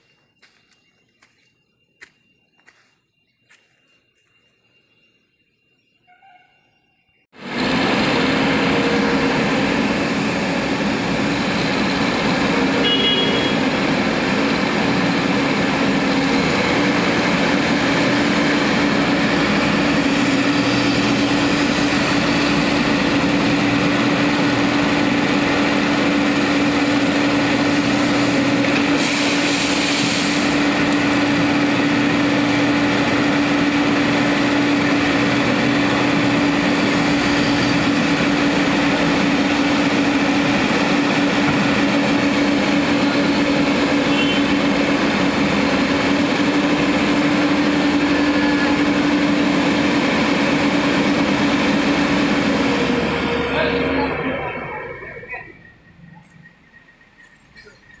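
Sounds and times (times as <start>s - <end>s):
excavator engine: 7.3s - 58.0s.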